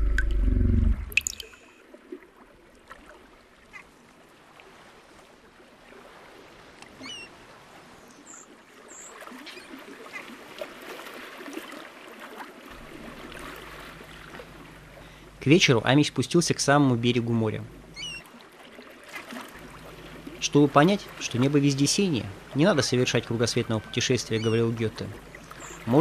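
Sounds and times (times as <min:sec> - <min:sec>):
small waves lapping among stones: 0:01.5 - 0:15.2, 0:17.9 - 0:24.0.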